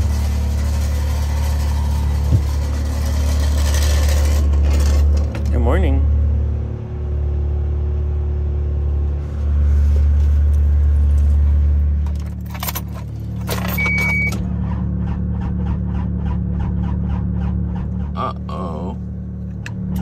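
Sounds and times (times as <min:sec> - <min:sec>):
diesel engine starter cranking: 0:00.0 - 0:05.6, 0:12.0 - 0:18.1.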